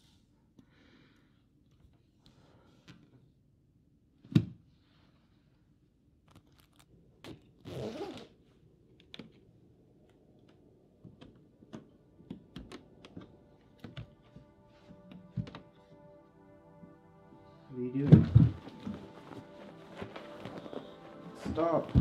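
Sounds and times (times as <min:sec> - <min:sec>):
jacket zipper pulled: 0:06.5 - 0:08.4.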